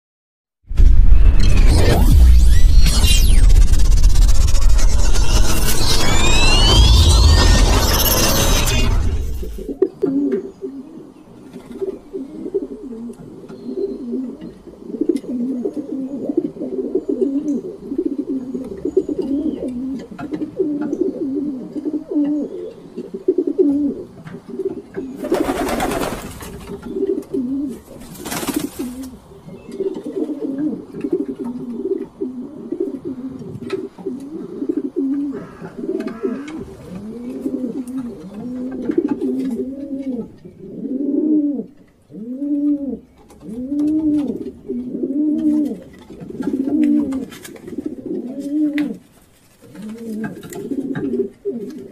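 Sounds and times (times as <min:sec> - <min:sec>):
short loud rushing noises: 0:00.7 - 0:09.8
pigeons cooing: 0:10.0 - 0:25.4, 0:28.6 - 0:49.0, 0:49.6 - 0:51.9.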